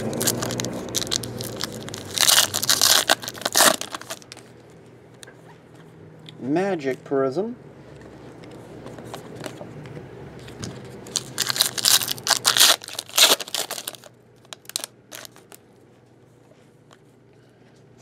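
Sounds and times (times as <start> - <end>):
foil crackles: 0.0 - 4.4, 11.1 - 15.6
foil wrapper tearing: 0.0 - 4.4, 11.1 - 15.6.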